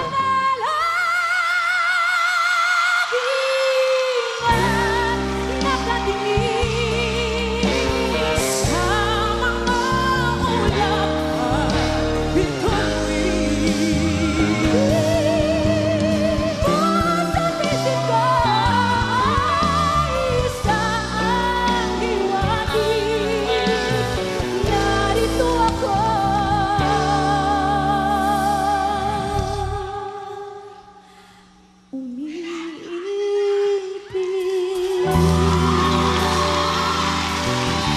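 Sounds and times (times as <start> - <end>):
woman singing a ballad: 0.0 - 31.3, 31.9 - 37.2
band accompaniment: 4.3 - 30.0, 35.0 - 37.9.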